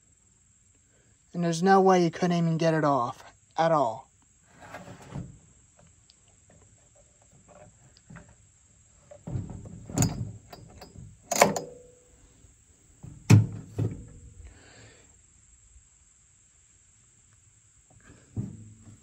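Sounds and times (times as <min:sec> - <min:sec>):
chainsaw thunking on wooden deck: 0:13.0 - 0:14.3.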